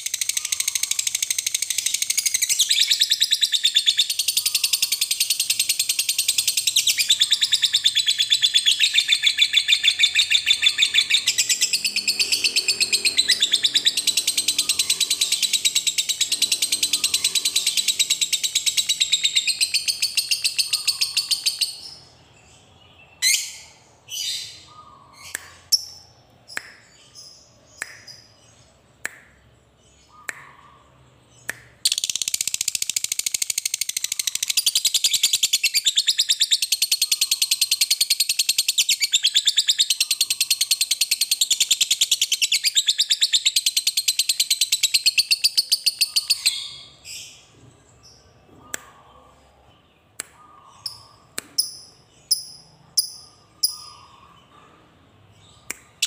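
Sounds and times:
lovebird chattering trill: 0.0 - 22.1, 31.9 - 46.9, 50.7 - 54.2
lovebird sharp chirps: 0.0 - 22.2, 23.2 - 29.4, 30.0 - 47.3, 50.2 - 54.2.

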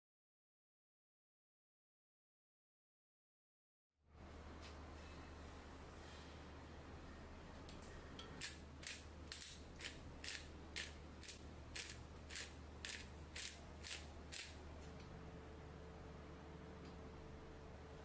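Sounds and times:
pepper mill grinding: 8.4 - 14.6.

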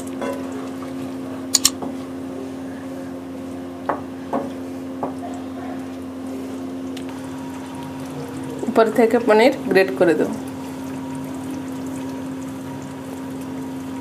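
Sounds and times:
steady low hum: 0.0 - 14.0
sharp clicks: 1.6 - 1.8.

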